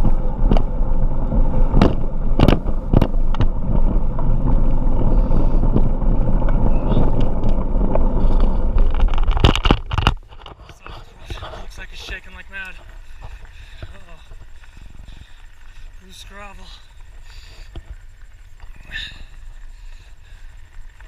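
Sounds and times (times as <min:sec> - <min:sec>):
bike knocks and rattles: 0:00.0 - 0:15.8
tyres and wind rushing: 0:00.0 - 0:21.0.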